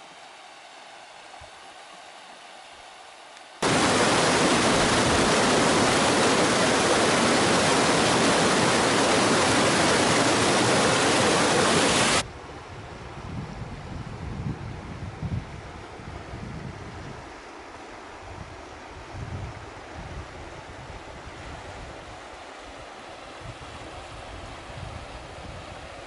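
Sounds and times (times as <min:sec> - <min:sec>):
rapids rushing over rocks: 0:03.6 - 0:12.2.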